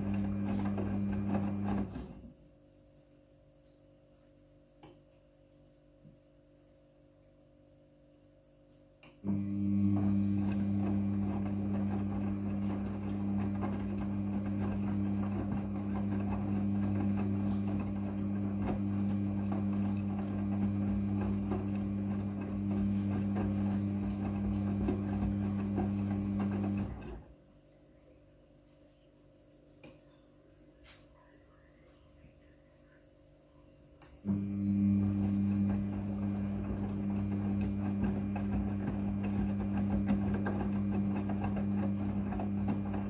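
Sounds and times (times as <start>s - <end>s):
towels churning in drum: 0.0s - 2.3s, 9.3s - 27.4s, 34.2s - 43.0s
washing machine motor hum: 0.0s - 2.4s, 9.2s - 27.6s, 34.1s - 43.0s.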